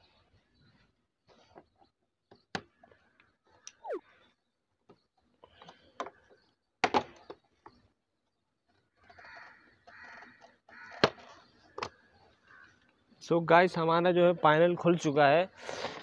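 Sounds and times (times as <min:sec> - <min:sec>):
short squeak: 0:03.7 - 0:04.0.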